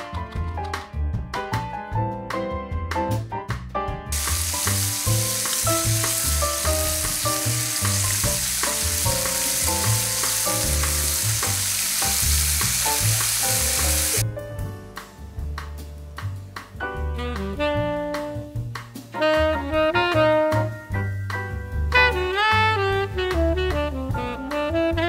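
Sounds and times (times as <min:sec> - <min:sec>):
background music: 0:00.0 - 0:25.0
fish sizzling on grill: 0:04.2 - 0:14.2.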